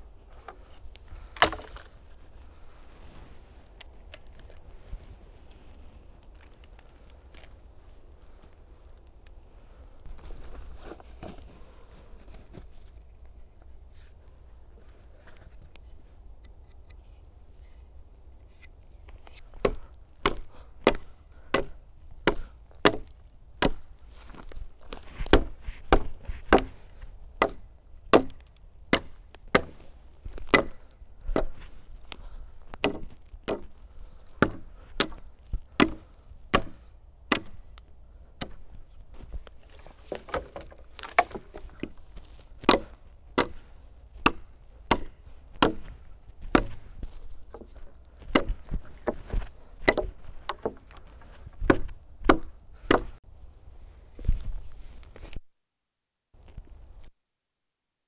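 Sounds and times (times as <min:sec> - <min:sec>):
hatchet chopping wood: 0:01.4 - 0:01.8, 0:19.6 - 0:23.9, 0:25.2 - 0:26.8, 0:27.4 - 0:29.8, 0:30.5 - 0:31.6, 0:32.8 - 0:33.7, 0:34.4 - 0:37.6, 0:40.1 - 0:41.6, 0:42.6 - 0:43.6, 0:44.2 - 0:46.8, 0:48.3 - 0:49.2, 0:49.8 - 0:50.8, 0:51.6 - 0:53.2.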